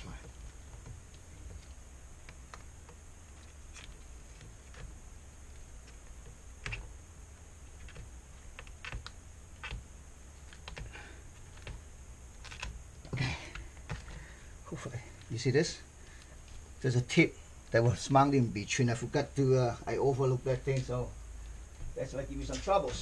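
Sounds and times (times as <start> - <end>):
steady low hum: 0.0 - 23.0
hands clicking and tapping parts: 7.7 - 14.3.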